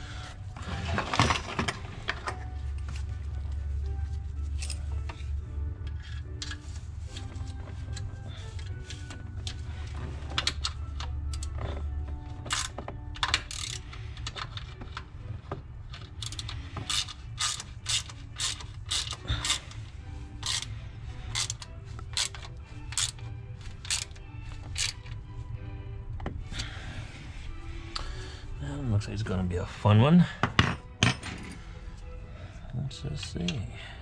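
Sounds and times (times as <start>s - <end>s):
ratchet wrench clicking: 12.5s - 14.6s, 16.0s - 19.7s, 20.4s - 20.7s, 21.3s - 23.2s, 23.8s - 25.1s.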